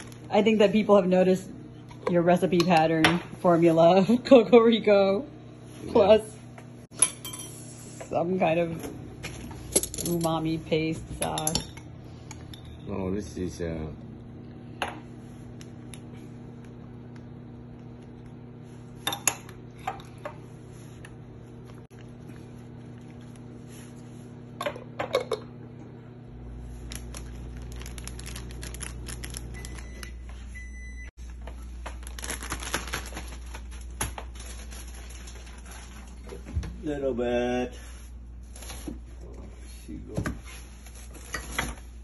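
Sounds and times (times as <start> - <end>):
steady low hum: 0.0 - 42.0
utensils clinking against dishes: 6.9 - 7.7, 9.6 - 13.1.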